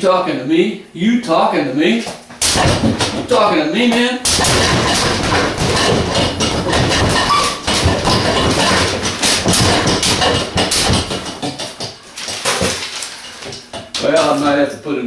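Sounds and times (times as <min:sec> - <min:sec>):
fists punching a heavy bag: 0:02.4 - 0:03.4, 0:04.3 - 0:11.6.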